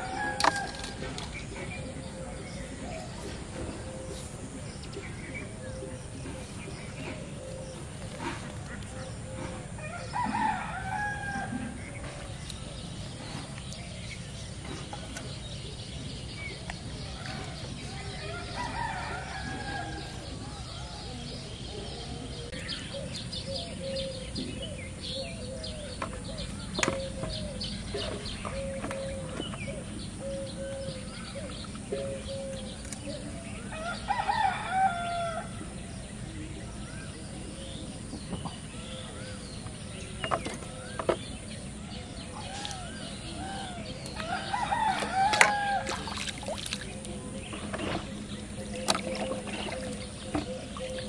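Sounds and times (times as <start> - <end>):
rooster crowing: 9.8 - 11.7, 18.3 - 20.2, 33.7 - 35.5, 43.5 - 46.1
chicken calls: 42.2 - 46.6.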